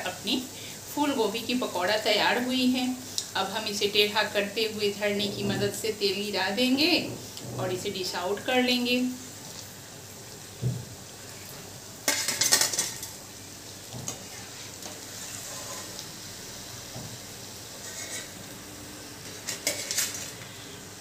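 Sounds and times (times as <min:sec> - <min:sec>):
hot oil sizzling: 0:00.0 - 0:21.0
metal skimmer scraping a metal pan: 0:14.7 - 0:16.0, 0:17.8 - 0:18.4.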